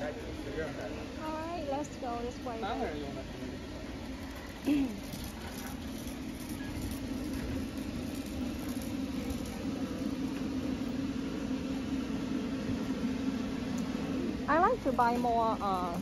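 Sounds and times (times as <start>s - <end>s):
shopping cart rolling on concrete: 4.0s - 11.3s, 14.5s - 16.0s.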